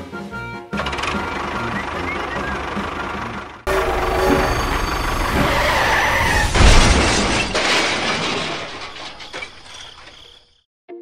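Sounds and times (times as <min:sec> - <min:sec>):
rattling debris: 0:03.7 - 0:10.6
toy skidding scrape with squeal: 0:03.7 - 0:10.6
toy crash smash: 0:06.2 - 0:10.5.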